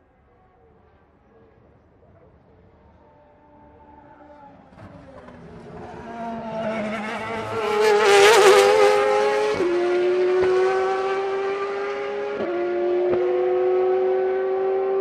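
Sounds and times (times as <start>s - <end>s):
race car passing and accelerating: 3.1s - 15.0s.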